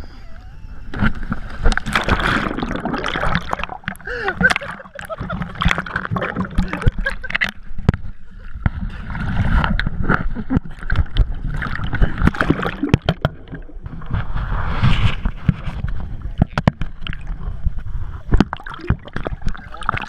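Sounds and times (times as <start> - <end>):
water splashing and sloshing: 0.0 - 20.0
rumbling water wash: 1.0 - 8.0.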